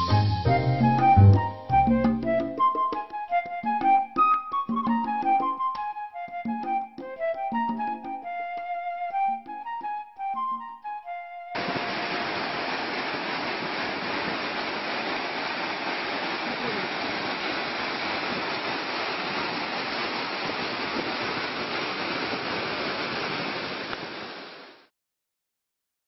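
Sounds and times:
waterfall rushing over rock: 0:11.6 - 0:24.9.

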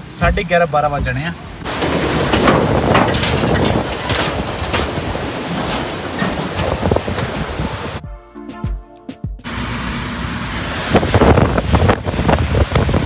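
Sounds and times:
rushing river water: 0:00.0 - 0:08.0, 0:09.5 - 0:13.0
wind and road noise: 0:00.0 - 0:08.0, 0:09.4 - 0:13.0
metallic clatter of bridge deck: 0:01.6 - 0:08.0.

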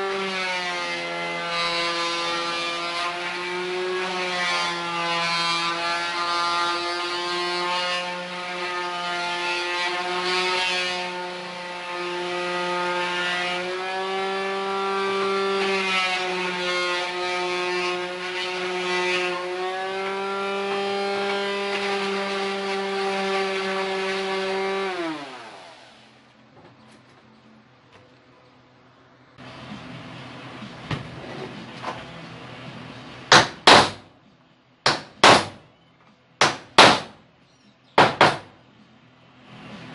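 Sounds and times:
sander pad scratching wood: 0:00.0 - 0:26.1.

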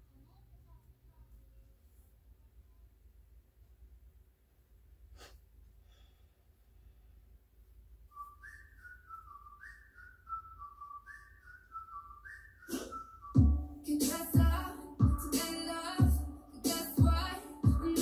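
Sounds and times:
person whistling a tune: 0:08.1 - 0:14.4.

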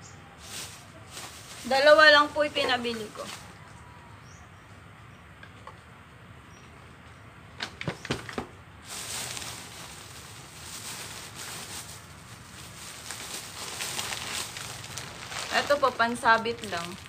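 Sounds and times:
plastic bag rustling: 0:00.4 - 0:03.4, 0:08.8 - 0:17.0.

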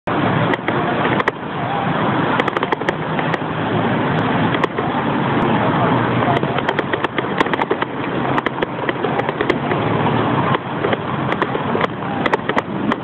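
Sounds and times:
traffic and road noise: 0:00.0 - 0:13.0
bicycle clicks and rattles: 0:00.5 - 0:01.4, 0:02.3 - 0:03.6, 0:04.4 - 0:04.9, 0:06.2 - 0:13.0.

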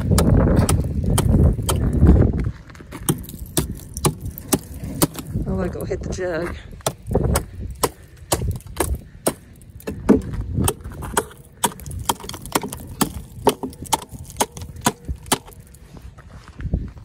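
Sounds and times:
hatchet chopping ice: 0:00.1 - 0:02.0, 0:03.0 - 0:05.4, 0:06.8 - 0:15.7.

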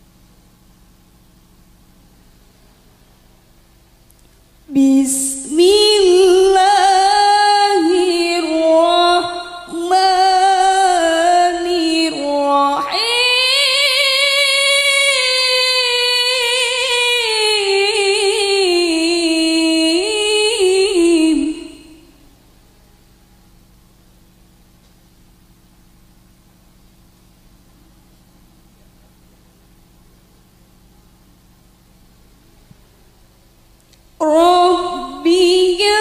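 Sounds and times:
woman reciting melodically: 0:04.7 - 0:22.1, 0:34.2 - 0:36.0.

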